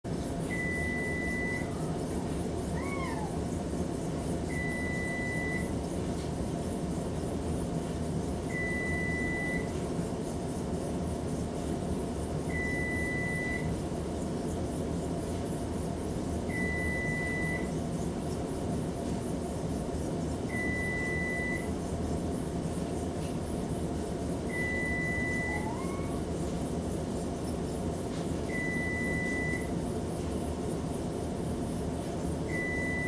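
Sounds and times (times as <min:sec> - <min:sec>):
oven timer beeping: 0:00.4 - 0:01.8, 0:04.5 - 0:05.8, 0:08.5 - 0:09.7, 0:12.5 - 0:13.8, 0:16.5 - 0:17.7, 0:20.5 - 0:21.8, 0:24.5 - 0:26.2, 0:28.5 - 0:29.8, 0:32.5 - 0:33.0
cat meowing: 0:01.6 - 0:03.5, 0:25.3 - 0:26.3.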